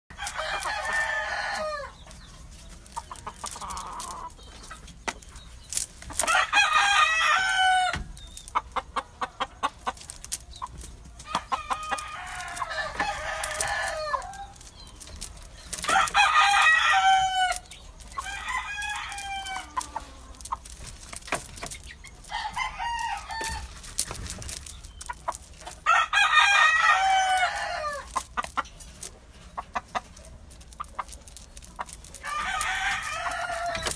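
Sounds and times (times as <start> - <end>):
rooster crowing: 0.2 - 2.0, 6.3 - 8.0, 11.4 - 14.6, 15.9 - 17.6, 22.2 - 23.7, 25.9 - 28.1, 32.2 - 33.9.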